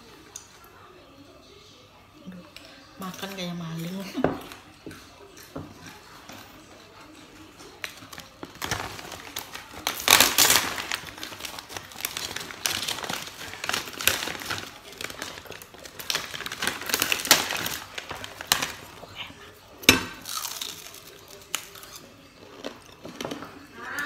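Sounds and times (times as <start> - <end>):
plastic bag crinkling: 7.6 - 19.5.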